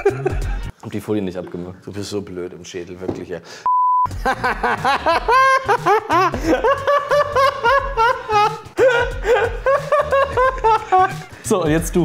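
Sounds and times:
man laughing: 0:00.0 - 0:00.7, 0:04.1 - 0:11.4.

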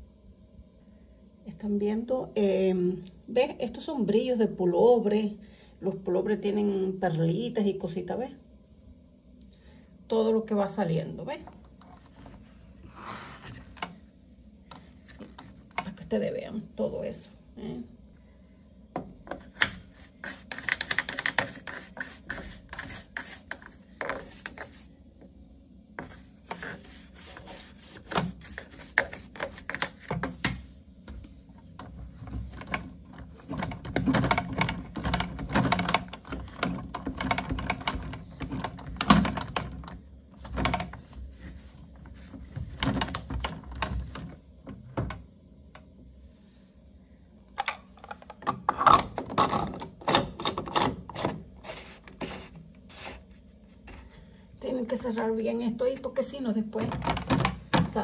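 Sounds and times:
toothbrush scrubbing plastic: 0:19.4 - 0:24.9, 0:26.0 - 0:30.4.

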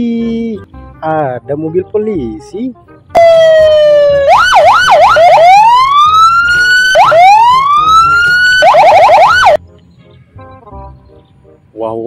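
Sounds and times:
police siren wailing: 0:03.2 - 0:09.6.

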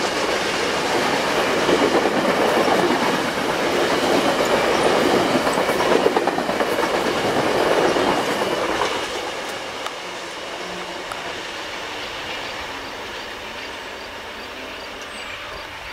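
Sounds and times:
passenger train cars rumbling past: 0:00.0 - 0:15.9.

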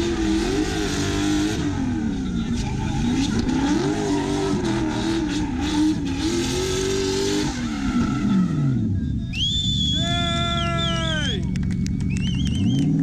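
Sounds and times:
car engine revving high: 0:00.0 - 0:09.0.

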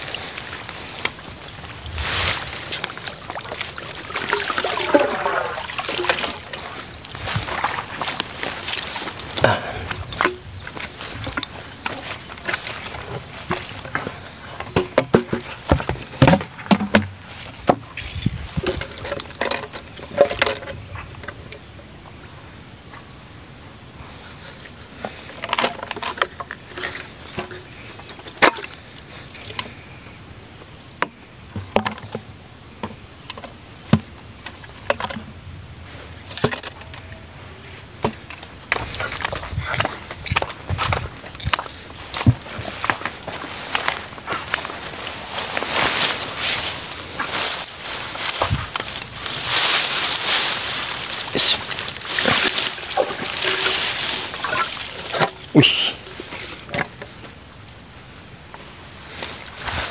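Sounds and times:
knocks and clatters of handling: 0:00.0 - 0:21.7, 0:25.0 - 0:29.8, 0:31.0 - 0:35.4, 0:36.2 - 0:55.5
high insect drone: 0:00.0 - 0:59.9
footsteps on dry straw: 0:41.8 - 0:54.8.

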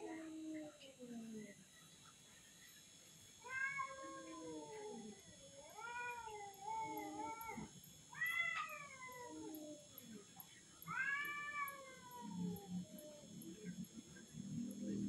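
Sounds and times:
cats yowling: 0:03.4 - 0:10.0, 0:10.8 - 0:13.3.

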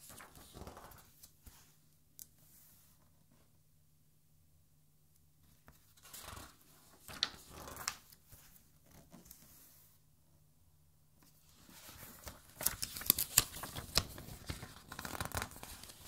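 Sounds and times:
book page turning: 0:06.0 - 0:09.8, 0:11.6 - 0:16.0.

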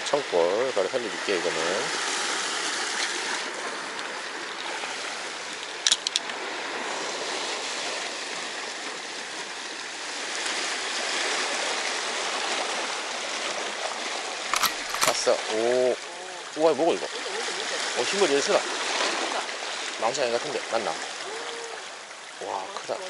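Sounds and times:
sharp clicks: 0:14.6 - 0:15.3.

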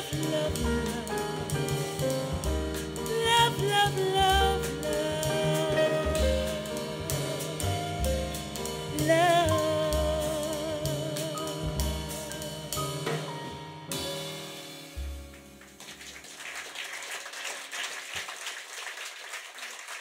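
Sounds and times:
woman singing: 0:00.0 - 0:02.1, 0:03.0 - 0:12.7
jazz band playing: 0:00.0 - 0:16.3
audience applause: 0:15.6 - 0:20.0.

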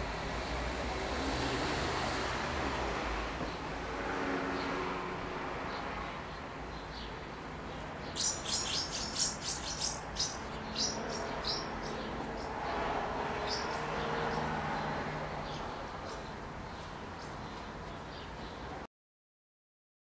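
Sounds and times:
steady background noise: 0:00.0 - 0:18.9
house martins chirping: 0:05.7 - 0:18.8.

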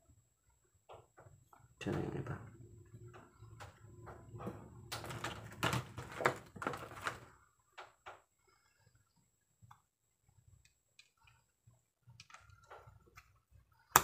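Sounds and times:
plastic packaging crinkling: 0:05.0 - 0:07.4.

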